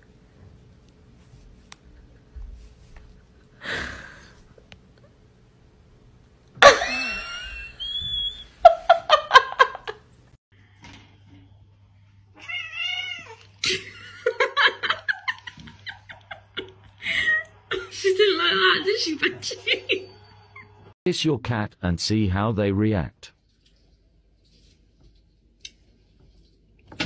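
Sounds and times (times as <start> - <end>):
cats meowing and yowling: 12.4 - 13.6.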